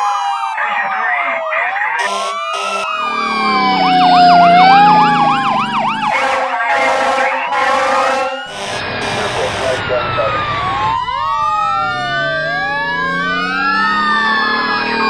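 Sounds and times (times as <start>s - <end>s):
emergency vehicle sirens wailing: 0.0s - 15.0s
short sharp horn blasts: 6.1s - 10.0s.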